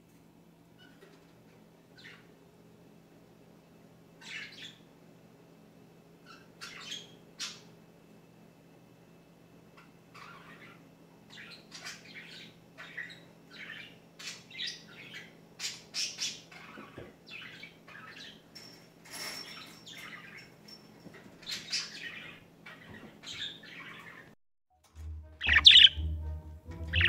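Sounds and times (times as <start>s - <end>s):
budgerigars chirping and chattering: 2.0s - 2.3s, 4.2s - 4.8s, 6.3s - 7.6s, 10.1s - 18.4s, 21.5s - 24.2s, 25.4s - 26.0s.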